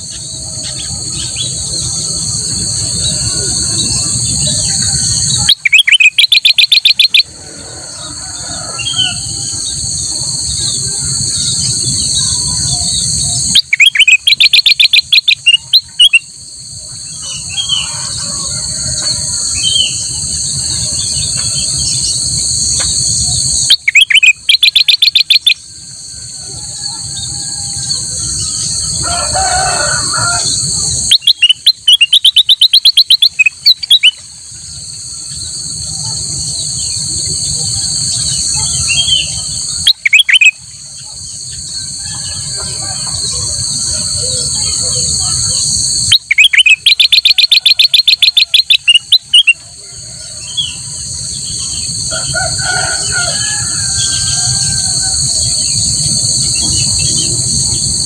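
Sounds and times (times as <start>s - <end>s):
bird singing rapid repeated notes: 0.0s - 7.4s, 8.8s - 16.4s, 19.4s - 25.6s, 30.6s - 34.3s, 35.3s - 42.5s, 43.1s - 49.6s
shrill insect drone: 0.0s - 58.0s.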